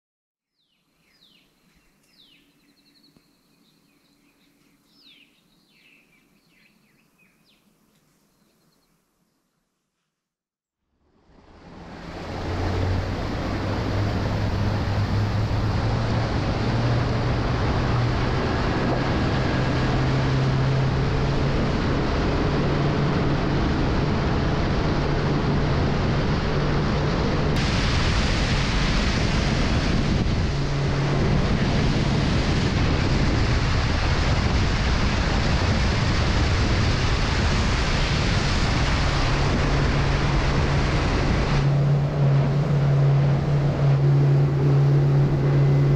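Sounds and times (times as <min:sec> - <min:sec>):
outboard motor drone: 0:11.0 - 0:45.9
water rushing along hull: 0:11.0 - 0:45.9
wind on microphone: 0:11.3 - 0:45.9.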